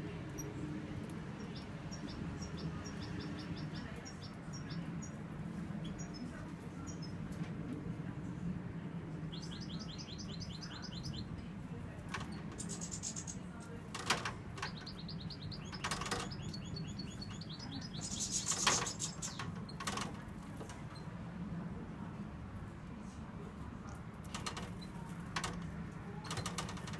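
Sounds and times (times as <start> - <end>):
goldfinch singing: 1.2 - 5.2, 9.3 - 11.4, 12.5 - 13.4, 14.6 - 19.8.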